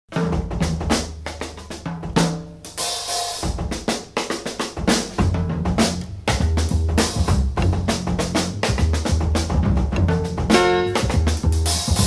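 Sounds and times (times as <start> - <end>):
drum kit: 0.1 - 12.0
easy-listening orchestral music: 5.2 - 12.0.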